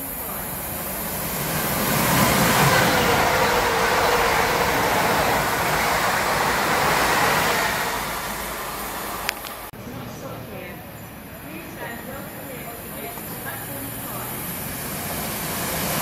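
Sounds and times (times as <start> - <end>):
faint train whine: 0.0 - 16.0
train wheels rushing on rail: 0.0 - 16.0.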